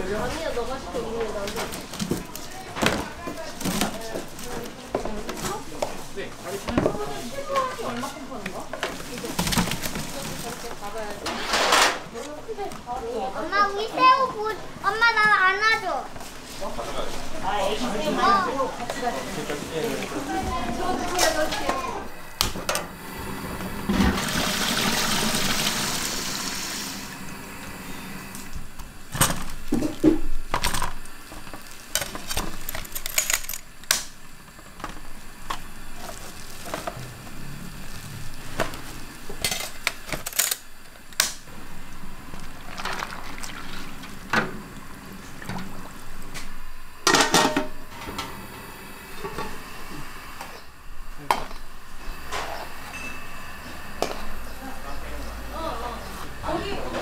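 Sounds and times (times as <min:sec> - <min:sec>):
cookware and dishes clinking: 0:47.0 - 0:48.2.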